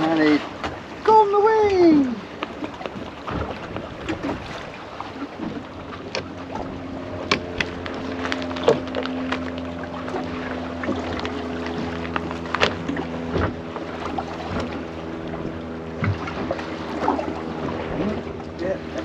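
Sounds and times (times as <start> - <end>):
steady low hum: 2.0 - 19.0
knocks and clicks from gear: 7.2 - 9.2.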